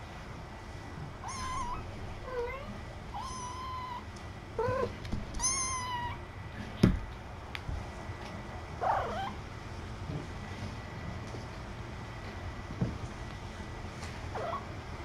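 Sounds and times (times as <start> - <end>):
kitten meowing: 1.2 - 4.0, 4.6 - 6.2, 8.8 - 9.4.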